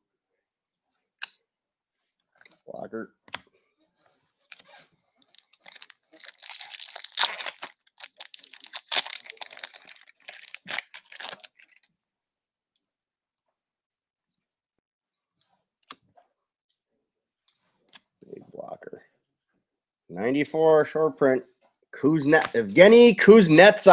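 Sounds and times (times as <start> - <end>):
foil crinkling: 5.3 - 11.9.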